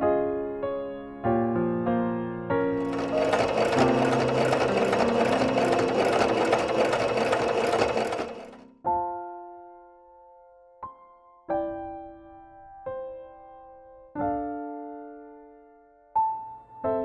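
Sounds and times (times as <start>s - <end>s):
electric sewing machine stitching: 2.8s - 8.6s.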